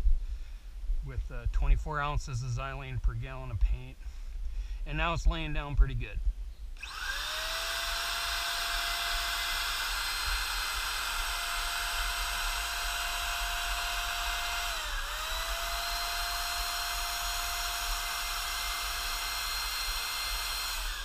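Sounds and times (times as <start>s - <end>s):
paint sprayer motor whine: 6.8s - 21.0s.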